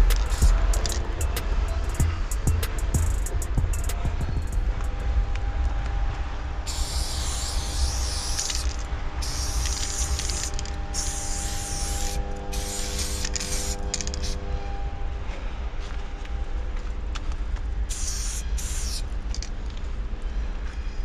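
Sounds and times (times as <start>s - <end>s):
spray paint can hissing: 0.0s - 4.6s, 6.7s - 14.4s, 17.9s - 19.5s
low rumble and hum: 0.0s - 21.0s.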